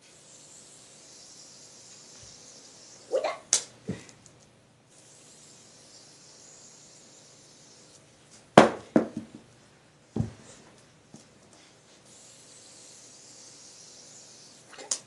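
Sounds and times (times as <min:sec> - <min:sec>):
faint steady hiss: 0:00.0 - 0:15.0.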